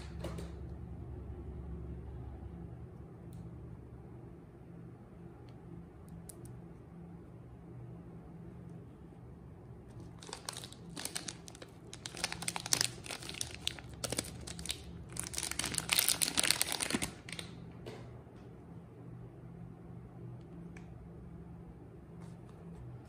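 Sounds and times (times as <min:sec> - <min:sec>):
soap wrapper crinkling and tearing: 0:10.0 - 0:17.6.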